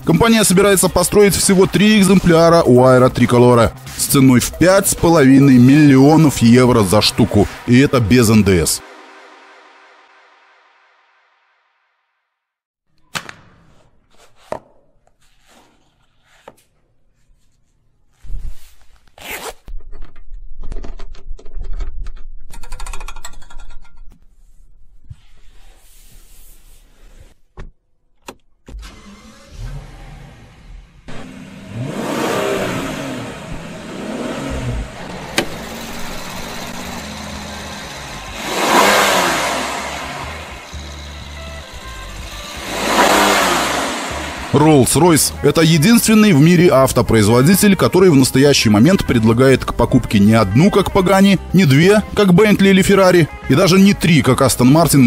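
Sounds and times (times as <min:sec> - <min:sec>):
car engine revving past: 0:06.2 - 0:11.8, 0:29.0 - 0:45.5
sharp clicks and knocks: 0:19.7 - 0:24.2.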